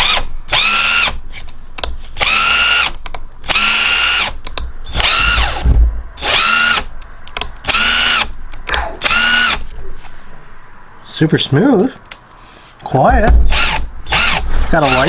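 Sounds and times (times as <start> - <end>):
impact driver motor whining: 2.2 - 6.9, 9.0 - 9.6, 13.4 - 15.0.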